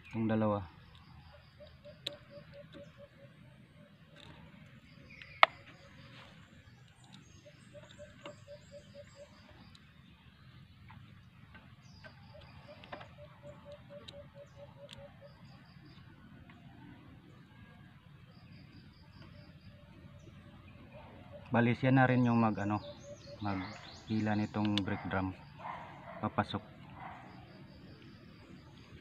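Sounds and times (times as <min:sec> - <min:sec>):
bird calling rapidly: 0:01.2 - 0:03.5, 0:07.0 - 0:09.8, 0:11.9 - 0:15.9, 0:20.8 - 0:27.4.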